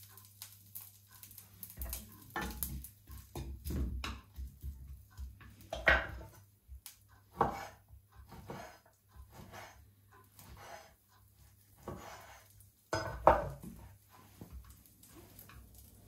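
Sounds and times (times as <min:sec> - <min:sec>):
kitchen utensils clinking and knocking: 0:01.8 - 0:06.4, 0:12.9 - 0:14.7.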